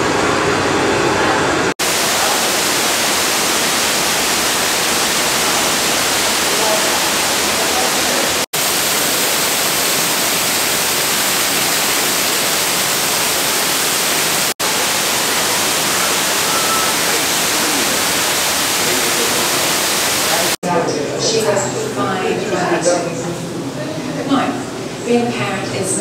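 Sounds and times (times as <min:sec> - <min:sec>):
water pouring down waterfall: 0:01.7 - 0:20.6.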